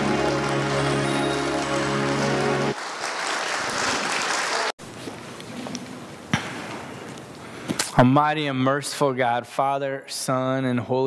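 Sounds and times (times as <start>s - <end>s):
music with sustained tones: 0.0s - 2.8s
audience applause: 0.0s - 4.8s.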